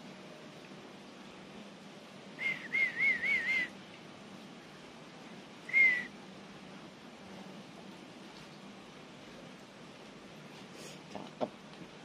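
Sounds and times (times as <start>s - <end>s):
person whistling: 2.4s - 3.7s, 5.7s - 6.1s.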